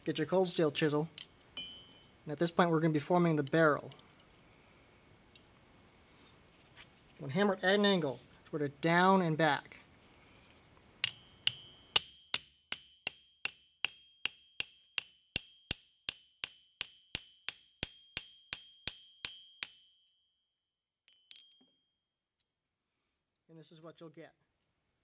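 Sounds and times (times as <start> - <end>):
hammer striking steel chisel: 1.2 - 2.1, 11.0 - 20.1, 21.1 - 21.8
faint metal clink: 1.2 - 2.2, 11.0 - 12.2, 21.1 - 21.9.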